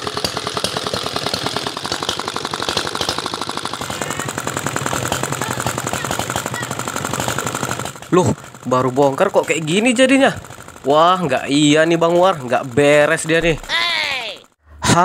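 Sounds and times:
diesel engine knocking: 0:00.0 - 0:14.6.

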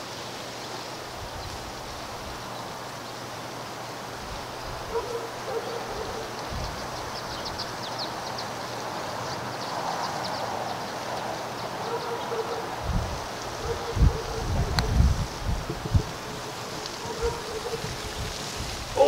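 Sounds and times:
small birds chirping: 0:00.0 - 0:19.0
steady background hiss: 0:00.0 - 0:19.0
wind rumble on microphone: 0:01.0 - 0:02.7, 0:04.1 - 0:08.2, 0:12.7 - 0:19.0.

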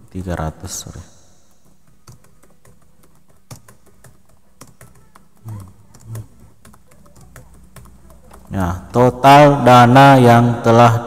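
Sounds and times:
keyboard key clicks: 0:01.5 - 0:08.5.

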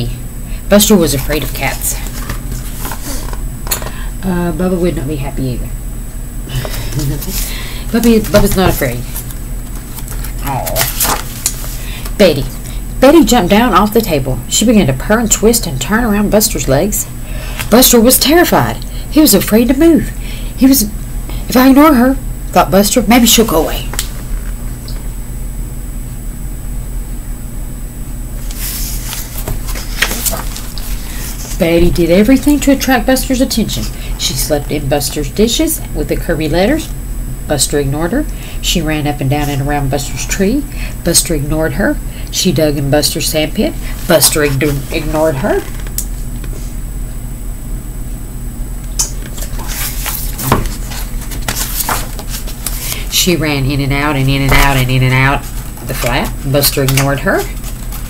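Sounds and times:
low electrical hum: 0:00.0 - 0:58.0
book page rustling: 0:01.3 - 0:03.4, 0:06.7 - 0:11.8, 0:28.4 - 0:31.8, 0:49.2 - 0:53.1, 0:54.5 - 0:58.0.

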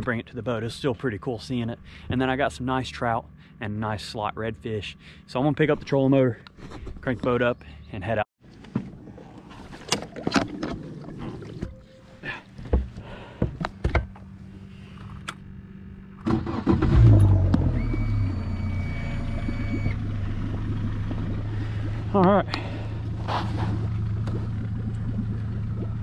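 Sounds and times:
outboard motor starting and idling: 0:08.5 - 0:26.0
clunks and knocks: 0:12.6 - 0:14.2.

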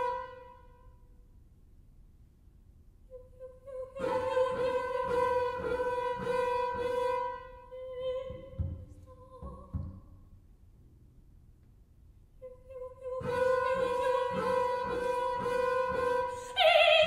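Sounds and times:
soft low knocks: 0:08.0 - 0:10.5.

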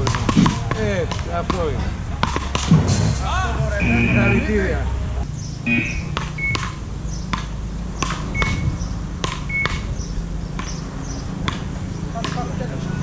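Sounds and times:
paddles striking ball: 0:00.0 - 0:04.0, 0:06.1 - 0:10.8, 0:11.4 - 0:12.6
short high beeps: 0:03.8 - 0:04.5, 0:05.7 - 0:06.6.

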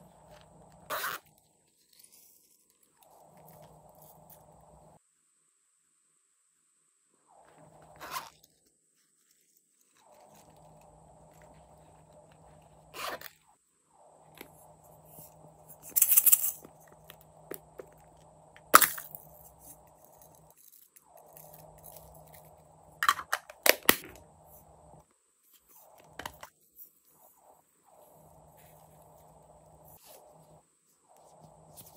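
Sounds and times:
wet squelches and crackles: 0:00.2 - 0:05.0.

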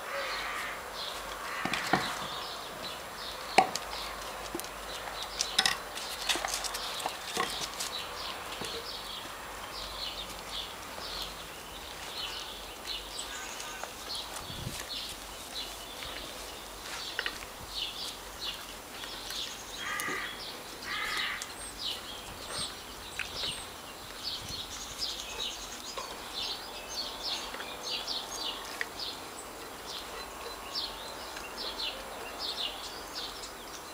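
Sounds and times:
harsh cawing calls: 0:00.0 - 0:02.4, 0:19.8 - 0:21.5.

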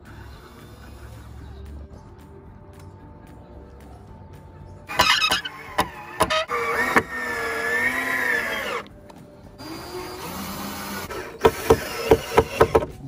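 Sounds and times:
cordless drill motor whirring: 0:04.9 - 0:09.0, 0:09.6 - 0:13.0.

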